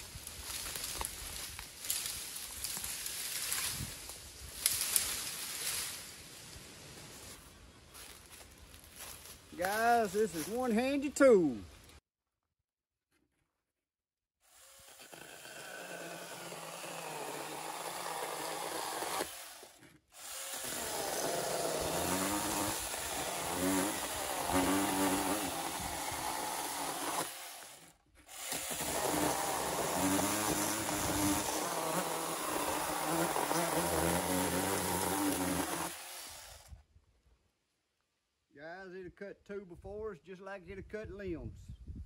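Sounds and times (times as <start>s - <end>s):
mini chainsaw cutting wood: 14.4s - 36.8s.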